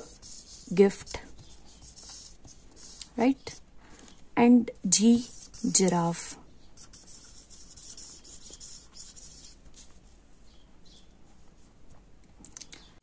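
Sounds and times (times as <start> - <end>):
marker pen scratching paper: 0.0 - 3.6, 5.1 - 10.0.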